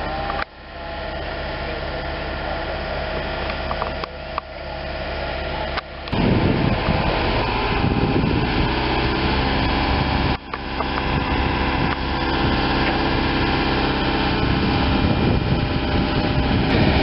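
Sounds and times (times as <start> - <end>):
diesel crane engine running: 0.0 - 17.0.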